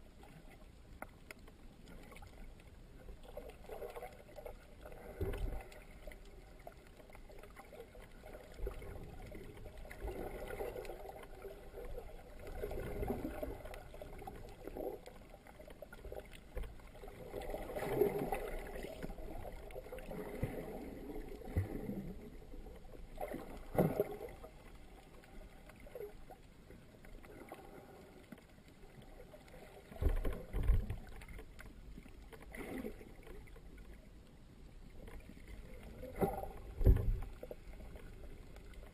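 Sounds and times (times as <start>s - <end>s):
swirling underwater noise: 3.2s - 26.4s, 32.4s - 33.9s, 35.1s - 38.9s.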